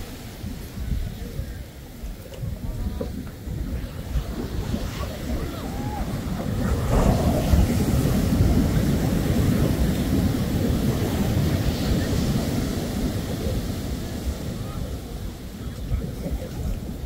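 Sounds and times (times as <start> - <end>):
ocean surf washing on beach: 0.0 - 17.0
wind rumbling on microphone: 0.0 - 17.0.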